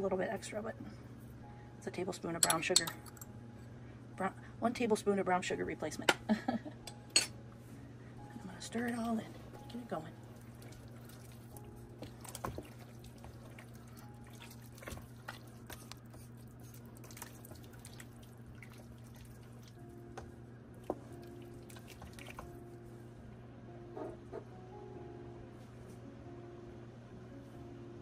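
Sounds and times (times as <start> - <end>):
steady low hum: 0.0 - 28.0
liquid sloshing: 10.2 - 19.8, 20.8 - 22.6.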